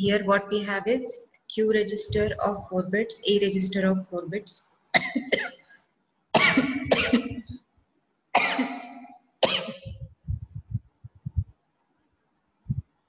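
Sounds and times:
soft low thumps: 2.0s - 2.8s, 9.8s - 11.6s, 12.6s - 12.9s
person coughing: 6.4s - 7.6s, 8.4s - 10.1s.

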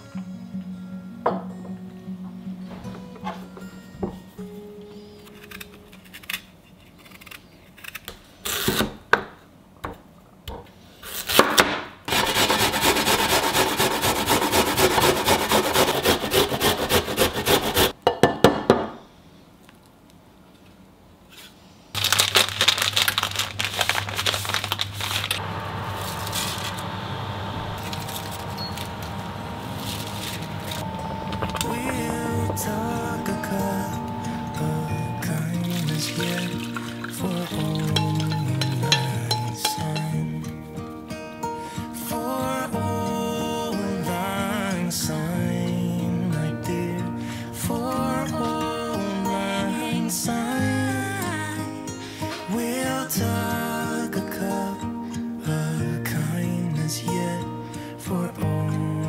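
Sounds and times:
radish grated on metal grater: 12.1s - 17.9s
steady low hum: 25.4s - 40.6s.

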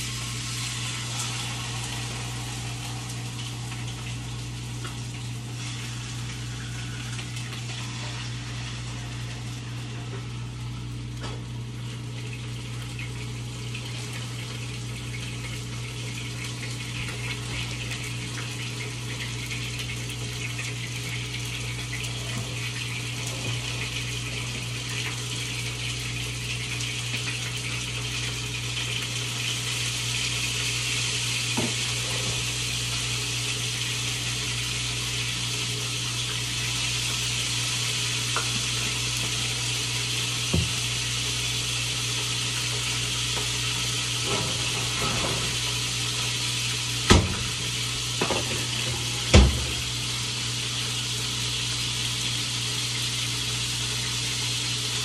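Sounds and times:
low appliance hum: 0.0s - 55.0s
water running from tap: 0.0s - 55.0s.

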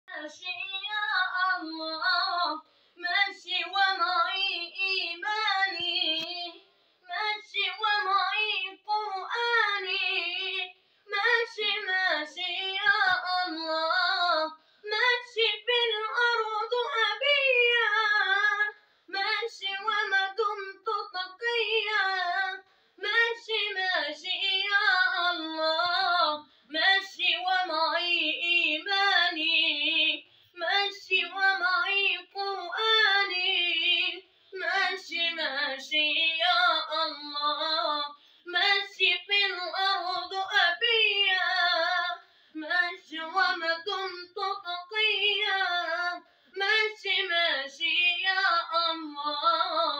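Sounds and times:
boy singing unaccompanied: 0.1s - 49.9s
singer breathing: 2.6s - 3.0s, 10.8s - 11.1s, 14.6s - 14.9s, 22.6s - 23.0s, 30.2s - 30.6s, 34.2s - 34.6s, 38.1s - 38.5s, 42.2s - 42.6s, 46.2s - 46.6s.

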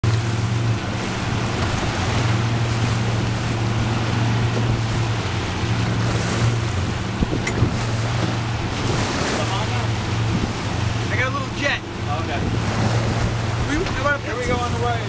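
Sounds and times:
wind on microphone: 0.0s - 11.1s, 11.9s - 15.0s
outboard motors droning: 0.0s - 15.0s
wake rushing: 0.0s - 15.0s.

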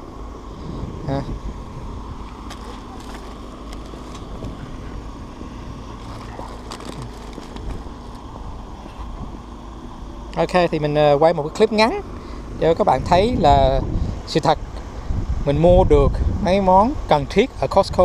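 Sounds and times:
low outdoor rumble: 0.0s - 18.0s
wire shopping trolley rattling: 6.0s - 8.2s.

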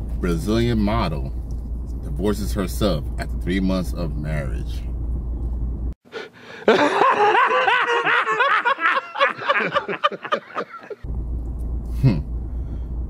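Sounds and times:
car engine rumble: 0.0s - 6.0s, 9.6s - 13.0s
man laughing loudly: 6.5s - 11.0s.

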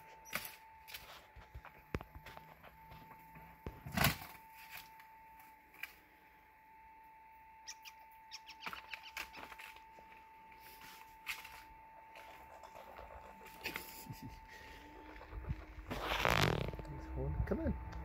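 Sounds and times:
faint high whine: 0.0s - 18.0s
rustles: 8.6s - 17.1s.

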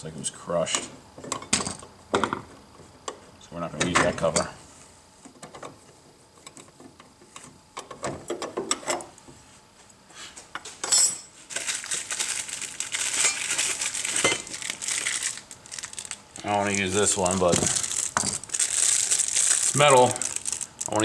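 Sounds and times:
metal parts rustling and clinking: 10.8s - 16.2s.

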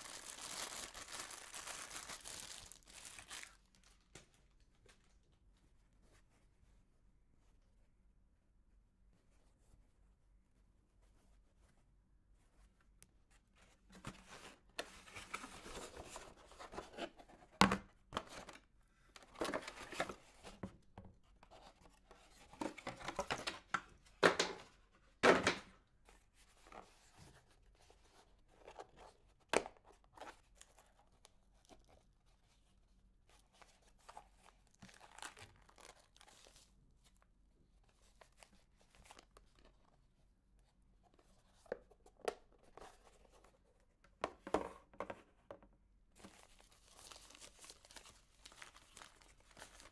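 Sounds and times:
plastic case rustling and scraping: 13.8s - 18.6s, 19.2s - 20.8s.

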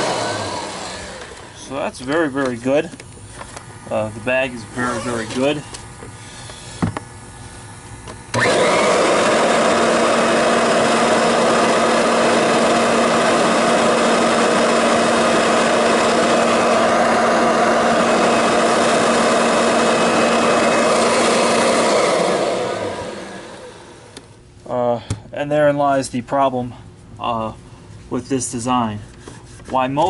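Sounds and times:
vacuum cleaner motor running: 0.0s - 7.1s, 8.1s - 24.3s.

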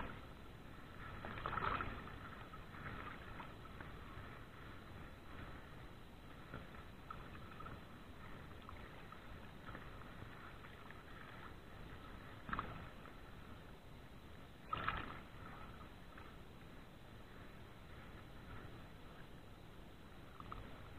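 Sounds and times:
choppy water: 0.0s - 20.9s.

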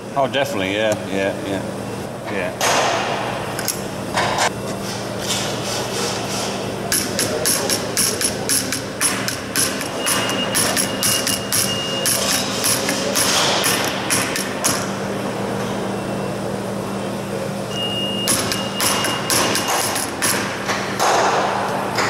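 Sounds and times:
steady low hum: 0.0s - 22.0s
hammer tapping metal: 6.9s - 14.9s, 18.3s - 21.2s.

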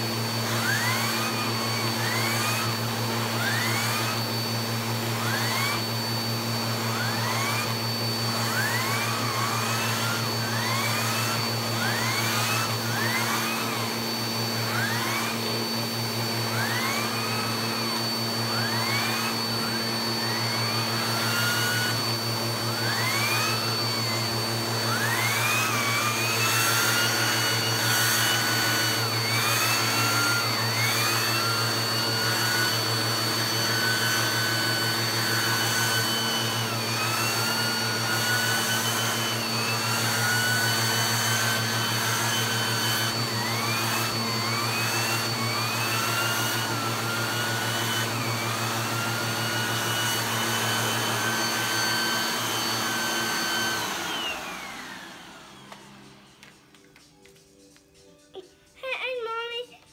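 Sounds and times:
vacuum cleaner motor whining: 0.0s - 58.8s.

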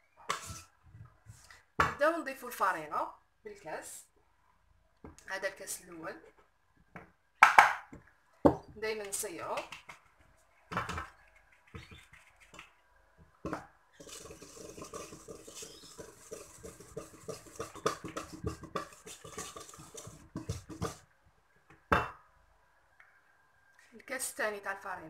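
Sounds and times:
wire whisk scraping metal bowl: 0.3s - 0.7s, 14.0s - 21.0s
knock on metal bowl: 14.1s - 21.0s.

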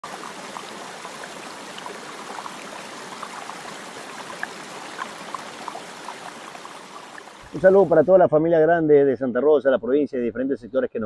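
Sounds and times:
river running over stones: 0.0s - 8.2s.

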